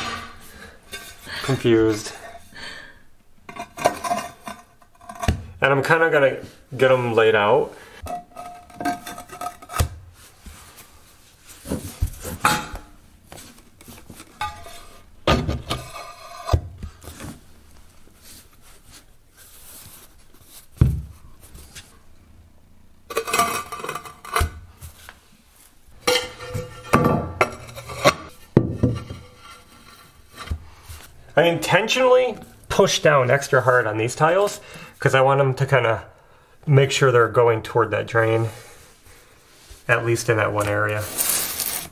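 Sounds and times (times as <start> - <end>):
tiles scraping on mortar: 14.2 - 17.4, 26.0 - 31.1, 40.6 - 41.9.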